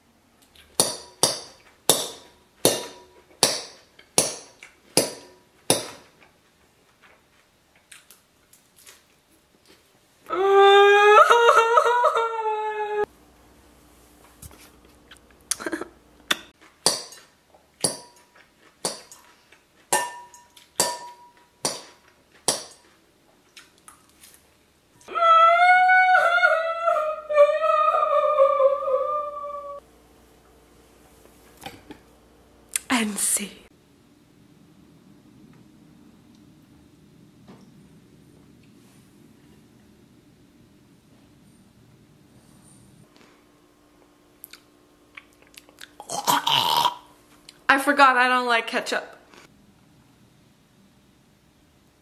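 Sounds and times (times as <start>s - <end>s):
fork clinking in glass bowl: 19.9s - 21.5s.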